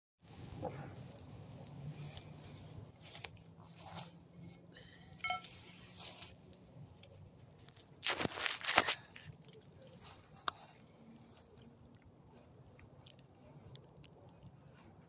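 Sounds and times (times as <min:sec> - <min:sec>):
rough scrapes on ground: 0:00.2 - 0:04.7, 0:05.4 - 0:06.4, 0:07.3 - 0:09.1.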